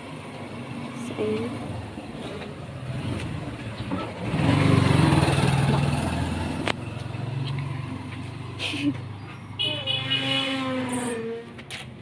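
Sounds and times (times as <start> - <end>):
vehicle engine running: 1.0 - 9.2.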